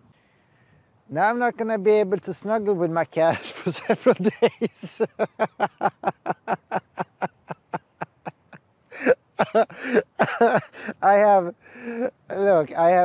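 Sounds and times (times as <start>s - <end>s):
man laughing: 3.3s - 11.3s.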